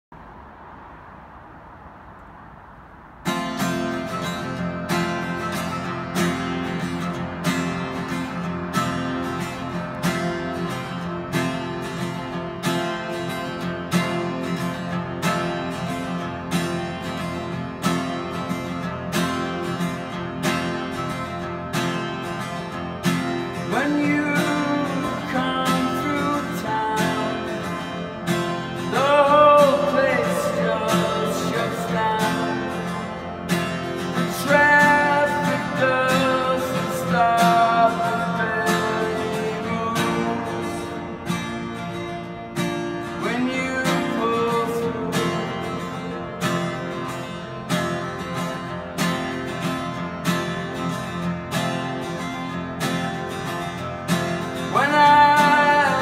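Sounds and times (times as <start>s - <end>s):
acoustic guitar strumming: 3.1s - 56.0s
man singing: 23.6s - 33.2s, 34.1s - 41.3s, 43.2s - 46.3s, 54.6s - 56.0s.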